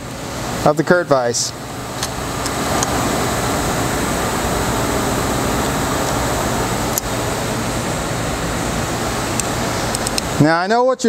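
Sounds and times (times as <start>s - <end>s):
whooshing air noise: 0.0s - 10.5s.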